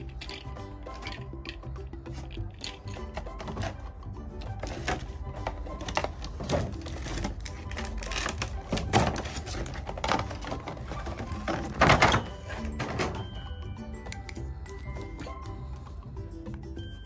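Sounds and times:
plastic bag crinkling: 0:04.6 - 0:12.4.

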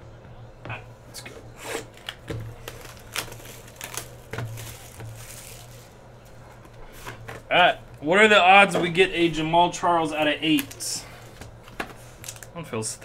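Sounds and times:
steady low hum: 0:00.0 - 0:13.0
plastic wrap crinkling: 0:01.7 - 0:07.5, 0:10.4 - 0:12.6.

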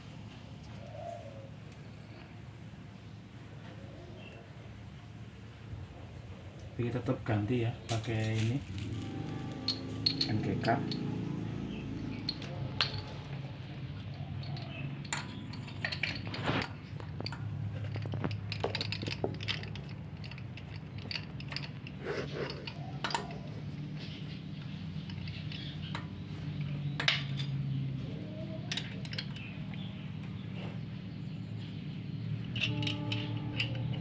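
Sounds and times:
small metallic clinks and taps: 0:08.8 - 0:11.4, 0:12.0 - 0:23.5, 0:24.6 - 0:27.8, 0:28.7 - 0:30.0, 0:32.4 - 0:34.0.

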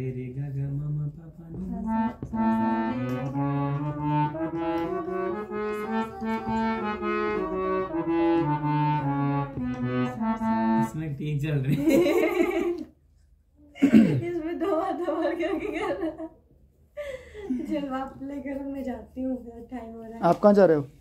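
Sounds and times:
keyboard melody of held notes: 0:01.6 - 0:11.1.

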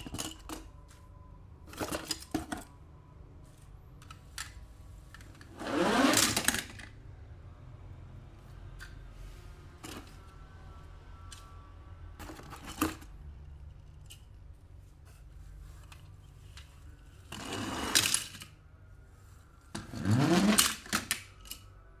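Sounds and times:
plastic toy cars rattling: 0:00.0 - 0:01.0, 0:01.6 - 0:02.8, 0:03.5 - 0:07.0, 0:12.2 - 0:14.4, 0:15.9 - 0:18.6, 0:19.8 - 0:21.7.

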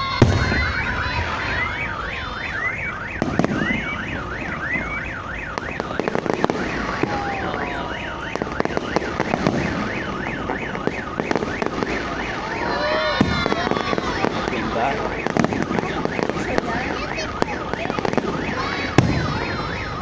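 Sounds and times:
car alarm siren: 0:00.0 - 0:20.0
fireworks banging and crackling: 0:00.0 - 0:20.0.

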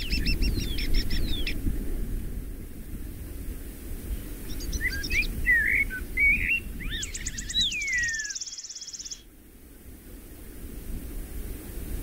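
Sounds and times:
birds chirping and whistling: 0:00.0 - 0:01.6, 0:04.5 - 0:09.2
bird trilling: 0:04.6 - 0:09.2.

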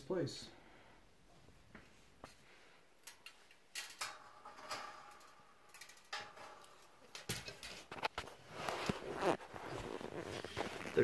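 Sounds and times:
metal parts clinking and rattling: 0:03.0 - 0:08.1
metal plates set down knocking: 0:03.8 - 0:08.2.

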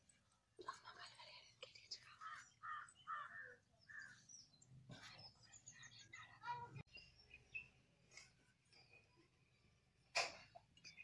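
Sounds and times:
crows cawing faintly: 0:02.2 - 0:04.3.

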